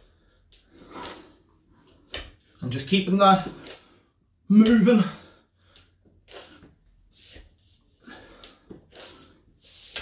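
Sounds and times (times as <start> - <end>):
man breathing hard: 7.8 - 10.0.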